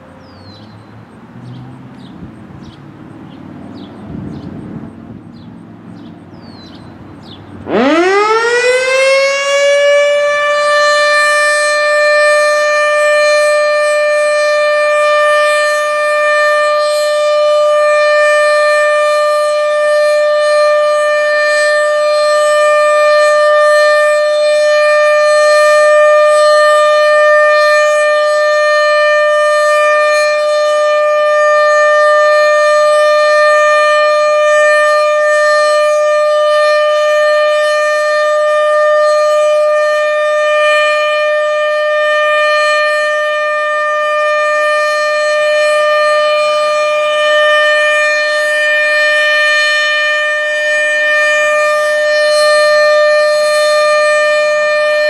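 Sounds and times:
warning siren steady tone: 0.0 - 55.0.

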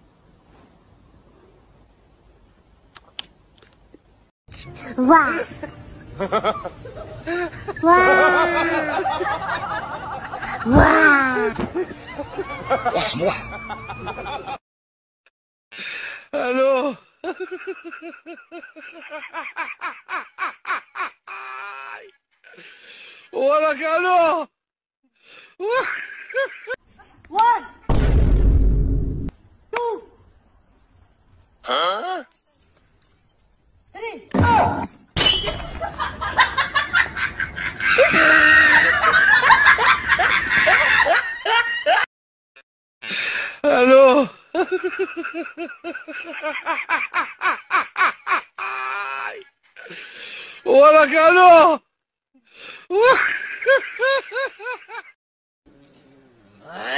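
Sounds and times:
person laughing hard: 6.2 - 14.6, 35.8 - 42.1.

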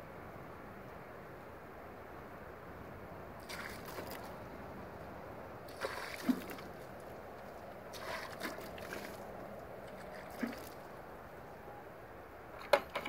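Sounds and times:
water splashing from bucket: 3.4 - 4.3, 5.7 - 10.9.

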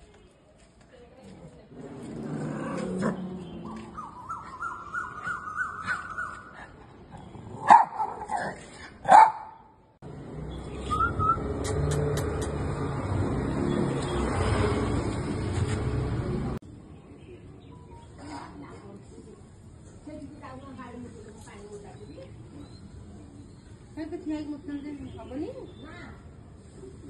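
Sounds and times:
small dog barking: 7.6 - 9.6.

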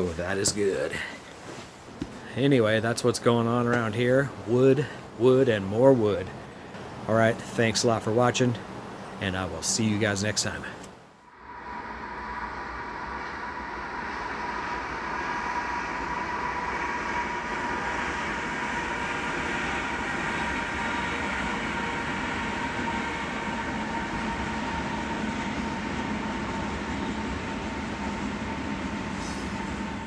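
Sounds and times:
distant freight train rumbling: 0.0 - 30.0
steady high-pitched tone: 11.2 - 30.0.

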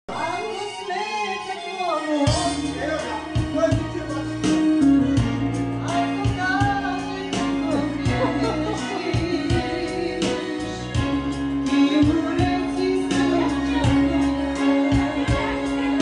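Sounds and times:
bass: 2.2 - 16.0
steady drum beat: 2.3 - 16.0
woman singing into a microphone: 4.6 - 16.0.

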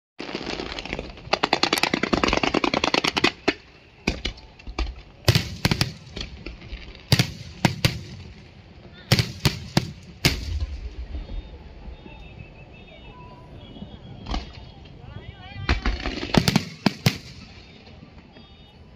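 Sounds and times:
fireworks booms: 0.2 - 12.8, 13.5 - 18.5
fireworks crackling volley: 0.2 - 18.9.

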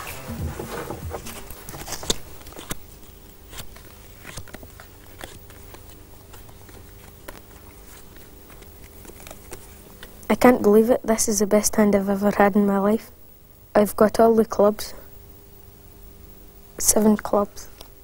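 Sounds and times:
faint room hum: 0.0 - 18.0
playing cards clicking and snapping: 0.6 - 10.2.

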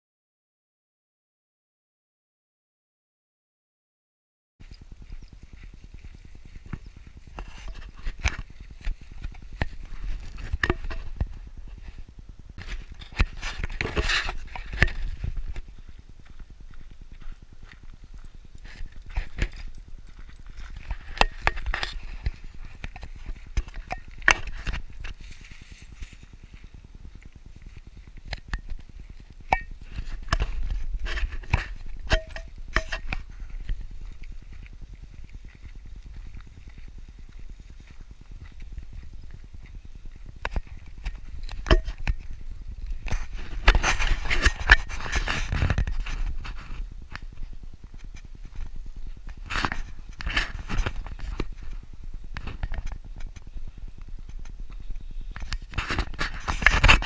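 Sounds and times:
footsteps on dirt trail: 4.6 - 57.0.

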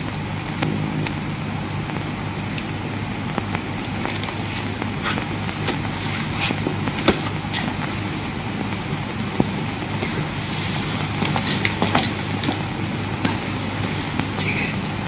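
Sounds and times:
film soundtrack hiss and hum: 0.0 - 15.0.

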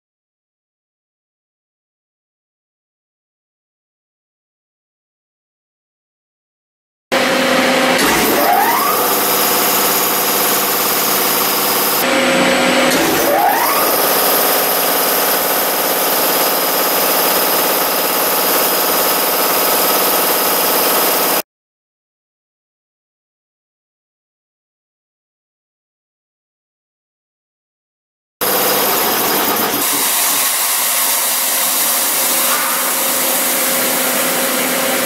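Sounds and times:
air compressor starting up: 7.2 - 21.4, 28.4 - 35.0.

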